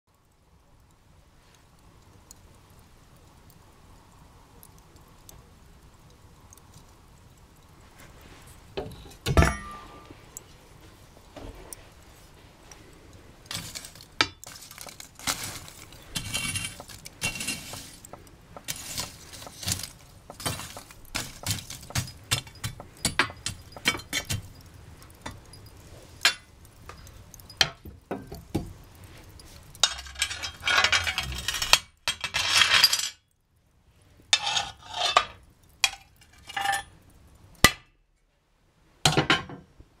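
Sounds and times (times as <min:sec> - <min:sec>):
coals clinking: 0:00.1 - 0:37.9
poker scraping coals: 0:07.6 - 0:33.1, 0:34.2 - 0:37.0
stove door metal clanks: 0:08.8 - 0:10.1.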